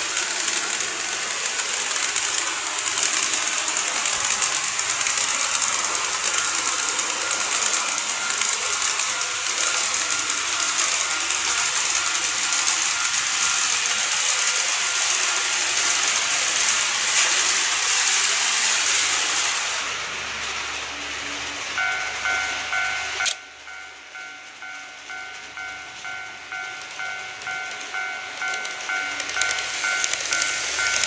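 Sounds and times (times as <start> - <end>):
model trains whirring on track: 0.0 - 31.0.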